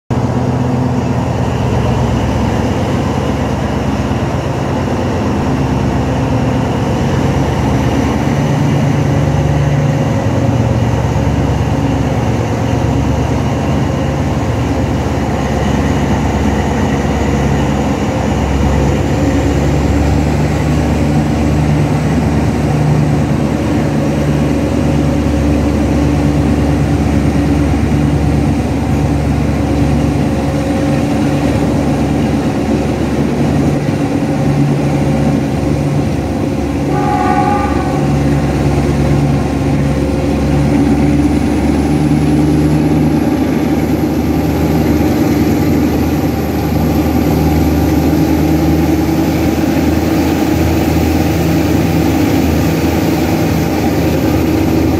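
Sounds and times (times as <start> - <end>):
diesel locomotive engine working hard: 0.1 - 54.9
faint high whine: 36.6 - 40.5.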